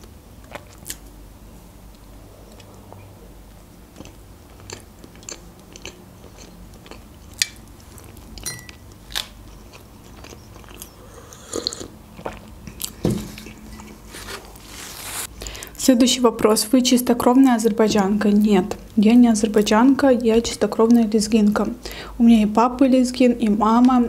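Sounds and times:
woman chewing pie: 0:03.9 - 0:15.3.

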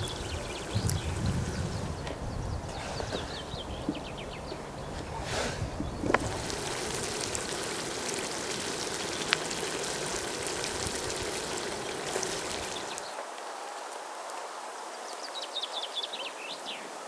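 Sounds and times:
water rushing: 0:00.0 - 0:14.1.

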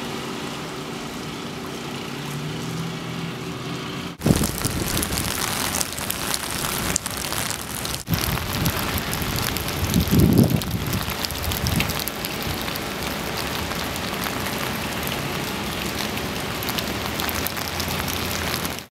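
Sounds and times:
heavy rain falling: 0:04.2 - 0:18.9
raindrops ticking close by: 0:04.2 - 0:18.9.

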